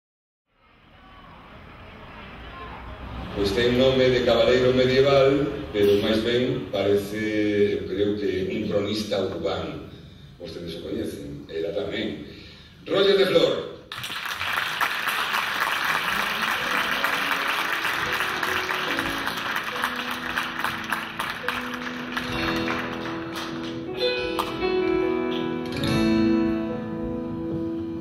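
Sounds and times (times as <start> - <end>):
audience applause: 13.9 - 24.6
acoustic guitar picking: 19.8 - 27.8.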